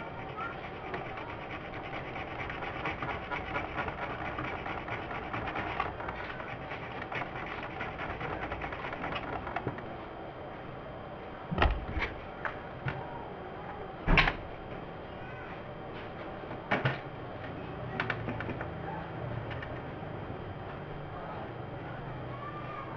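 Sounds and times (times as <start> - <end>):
crackling with fast clicks: 0.0 - 10.0.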